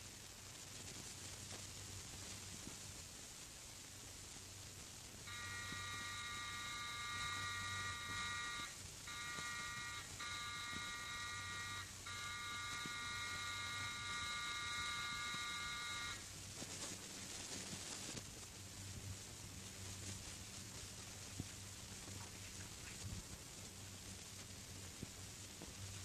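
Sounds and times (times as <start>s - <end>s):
doorbell buzzer: 5.3s - 16.2s.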